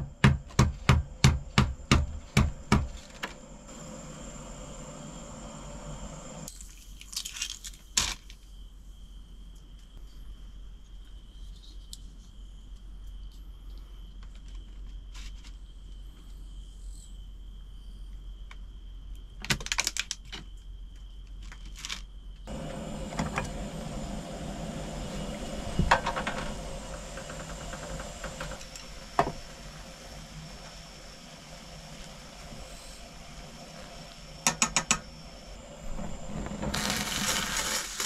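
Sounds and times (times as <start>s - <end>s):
gas stove hissing: 0.0s - 6.5s, 22.4s - 38.0s
insect trill: 0.0s - 38.0s.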